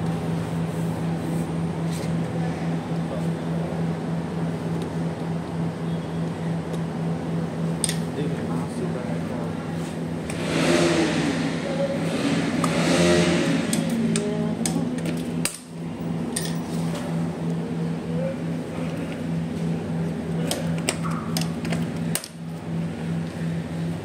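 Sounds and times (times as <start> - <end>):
low mechanical hum: 0.0 - 24.0
muffled voices: 17.9 - 19.3.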